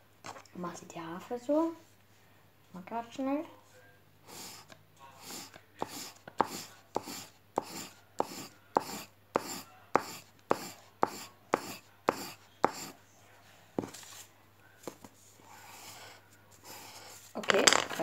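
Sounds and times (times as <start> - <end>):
pencil scribbling on paper: 4.3 - 13.0, 15.4 - 17.3.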